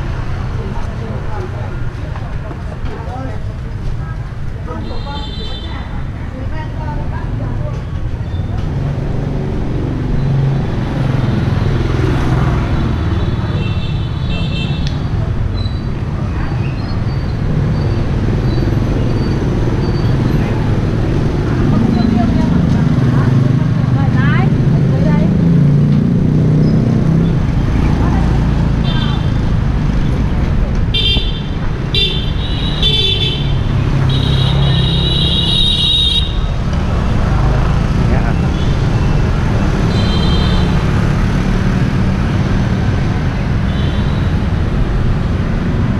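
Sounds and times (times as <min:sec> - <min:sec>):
motor scooter traffic rumble: 0:00.0 - 0:45.9
motorbike horn blast: 0:30.9 - 0:33.5, 0:34.1 - 0:36.4, 0:39.9 - 0:40.8.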